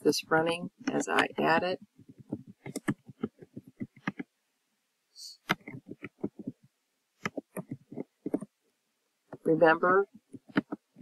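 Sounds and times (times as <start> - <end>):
keyboard typing: 0.8 - 4.3, 5.4 - 8.6, 9.3 - 11.0.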